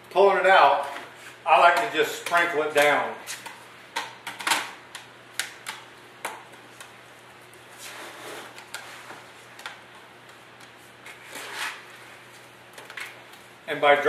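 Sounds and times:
soft scraping rustle: 7.7 - 9.3.

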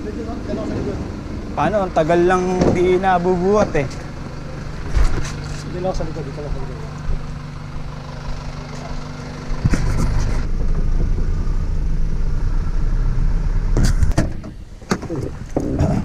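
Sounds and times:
car engine and road rumble: 0.0 - 16.0
engine low hum: 0.0 - 16.0
sharp knocks: 9.6 - 11.6.

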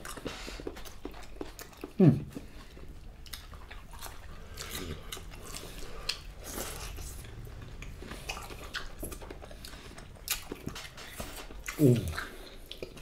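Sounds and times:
people chewing food: 0.0 - 13.0.

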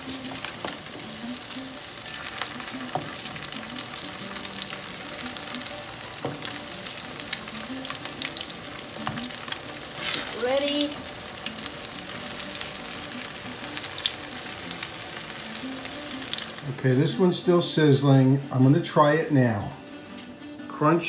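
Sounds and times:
pancakes sizzling in oil: 0.0 - 16.7.

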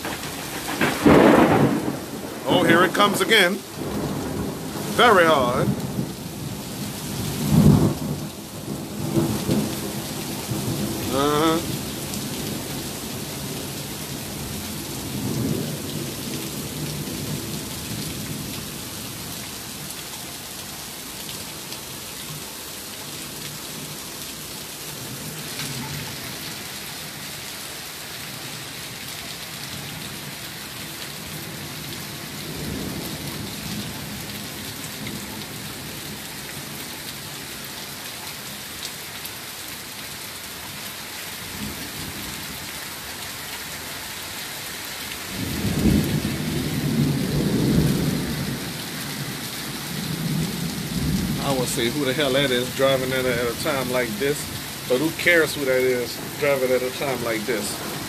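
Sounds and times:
thunder rumbling: 0.0 - 18.6, 45.3 - 58.0
heavy rain pouring: 0.0 - 58.0.

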